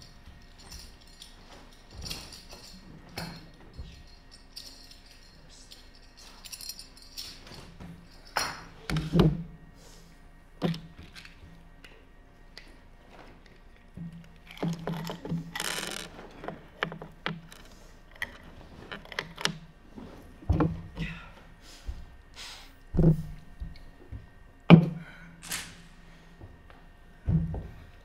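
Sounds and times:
knocks and clicks of props: 0:10.6 - 0:12.7, 0:13.4 - 0:19.7.

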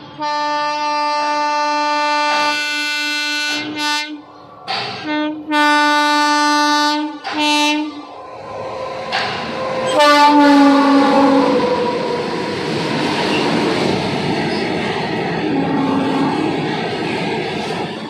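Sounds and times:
train rumble: 0:00.0 - 0:18.0
locomotive horn blasts: 0:00.2 - 0:04.2, 0:05.0 - 0:08.0, 0:09.8 - 0:11.9, 0:15.5 - 0:16.3.

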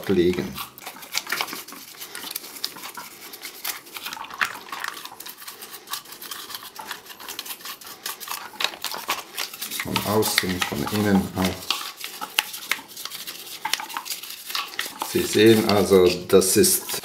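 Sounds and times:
toothbrush scrubbing plastic parts: 0:00.0 - 0:17.0.

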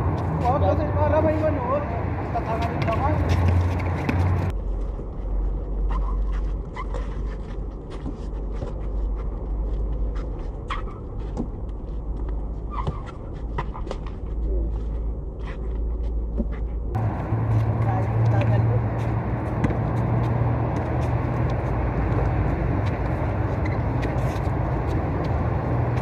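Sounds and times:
players' footsteps: 0:02.2 - 0:26.0
basketball bouncing and hitting rim: 0:02.6 - 0:04.5, 0:12.7 - 0:14.2, 0:19.4 - 0:20.0
shoe squeaks: 0:05.8 - 0:08.4, 0:10.6 - 0:11.4, 0:12.7 - 0:13.9, 0:22.8 - 0:25.0.

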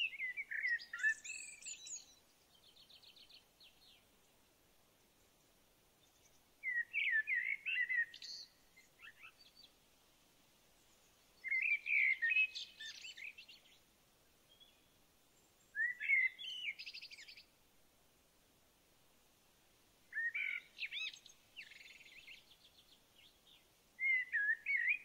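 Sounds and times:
songbird singing with trill: 0:00.0 - 0:04.1, 0:06.0 - 0:09.8, 0:11.0 - 0:17.5, 0:20.1 - 0:25.0.

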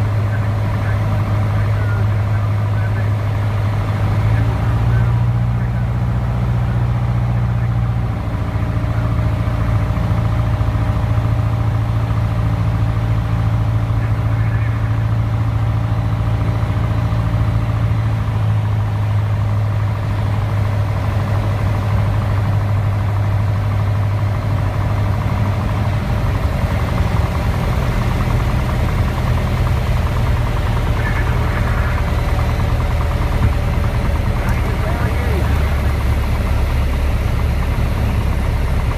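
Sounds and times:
light airplane engine droning: 0:00.0 - 0:38.9.

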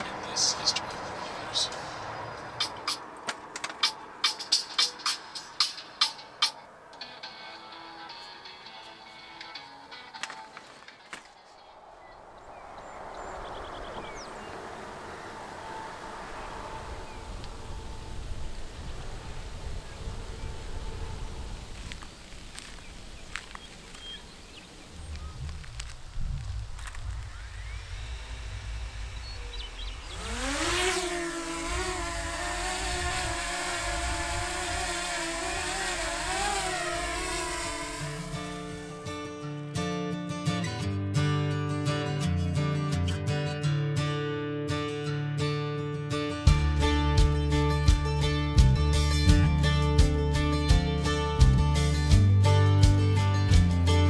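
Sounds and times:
distant highway traffic: 0:00.0 - 0:39.8
vehicle engine revving: 0:11.4 - 0:22.8, 0:26.6 - 0:39.3.

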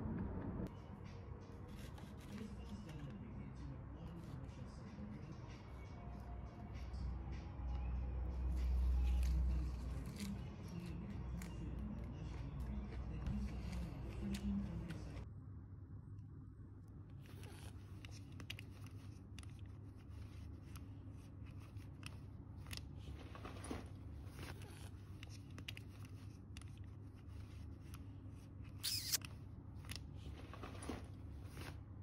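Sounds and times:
low steady hum: 0:00.0 - 0:32.0
metal buckle clicks and scrapes: 0:28.7 - 0:30.2.

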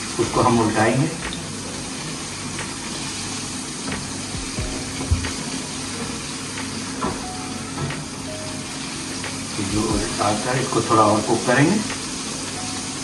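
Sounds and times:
chicken deep-frying in oil: 0:00.0 - 0:04.3, 0:05.3 - 0:13.0
utensil knocks: 0:03.9 - 0:05.6.

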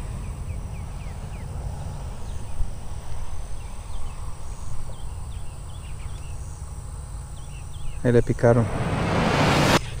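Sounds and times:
birds chirping: 0:00.0 - 0:08.8.

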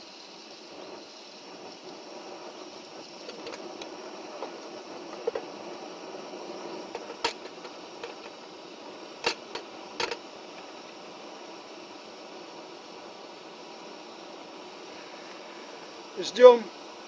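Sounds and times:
camp stove hissing: 0:00.0 - 0:17.0
metal kettle clinking: 0:03.2 - 0:05.4, 0:06.9 - 0:08.4, 0:09.2 - 0:10.2.

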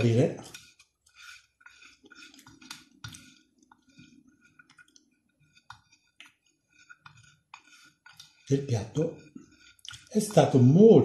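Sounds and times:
bread scraping a ceramic plate: 0:05.3 - 0:11.0.

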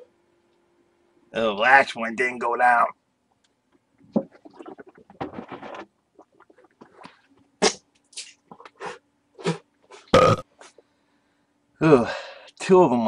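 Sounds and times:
man gulping water: 0:04.0 - 0:08.8, 0:10.1 - 0:10.4.

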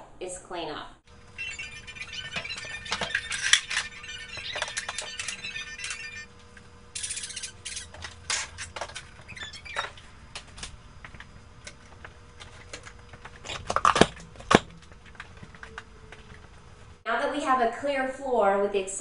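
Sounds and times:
plastic toys clattering: 0:01.5 - 0:06.2, 0:09.8 - 0:16.4.

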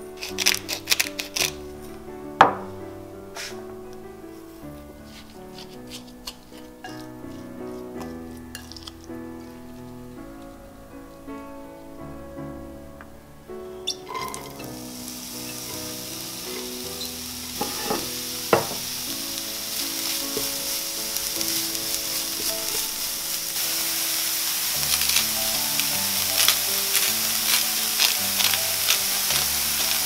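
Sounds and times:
soft background music: 0:00.0 - 0:30.0
vegetables sizzling in oil: 0:00.2 - 0:01.6, 0:13.8 - 0:30.0.

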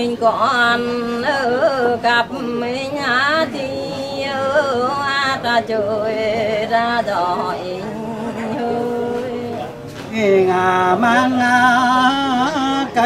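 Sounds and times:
person singing folk song: 0:00.0 - 0:13.0.

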